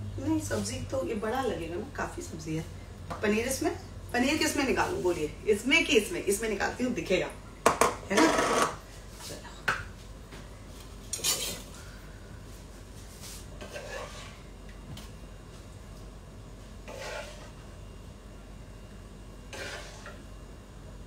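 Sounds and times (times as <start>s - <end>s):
metal spoon scraping steel pan: 13.6s - 14.4s, 16.8s - 17.6s, 19.5s - 20.2s.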